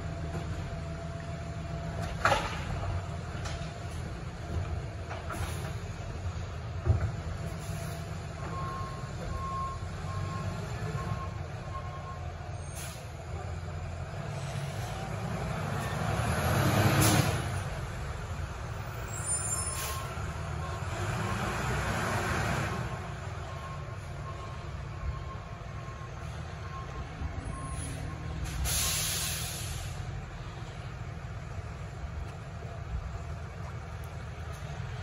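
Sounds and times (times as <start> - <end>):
distant garbage truck running: 0.0 - 35.0
reversing alarm beeping: 23.4 - 29.3.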